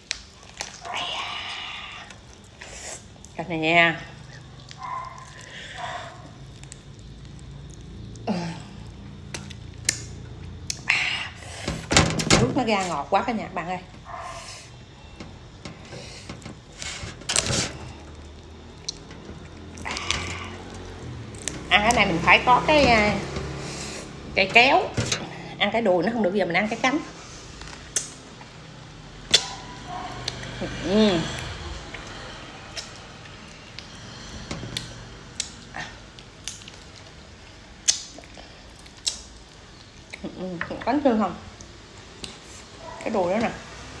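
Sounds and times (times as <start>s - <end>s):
chewing and pulling apart chicken: 0.0s - 3.4s, 4.1s - 10.9s, 14.2s - 21.7s, 31.4s - 40.2s.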